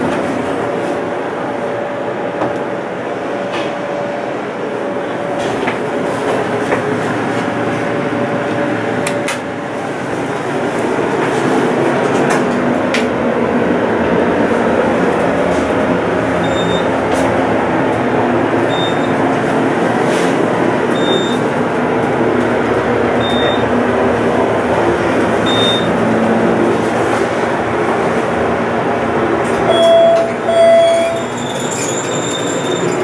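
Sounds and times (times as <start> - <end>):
elevator travel rumble: 0.0 - 33.0
short high beeps: 16.4 - 16.9, 18.7 - 19.1, 23.2 - 23.6, 25.5 - 25.9, 29.7 - 33.0
elevator chime tones: 16.4 - 17.0, 18.6 - 19.2, 20.9 - 21.4, 23.2 - 23.7, 25.4 - 26.0, 29.7 - 33.0.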